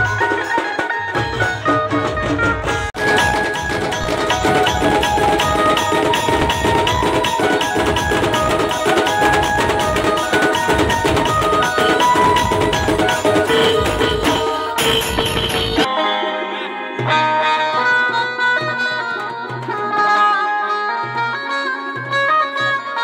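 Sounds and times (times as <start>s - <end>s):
rapid drumbeats: 0.0s - 15.9s
band melody line: 0.0s - 23.0s.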